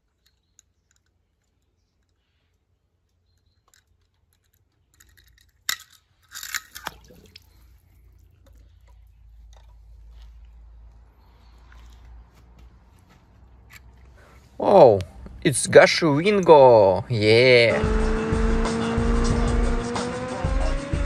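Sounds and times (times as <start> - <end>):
crunching and clicking handling: 0.0 - 6.9.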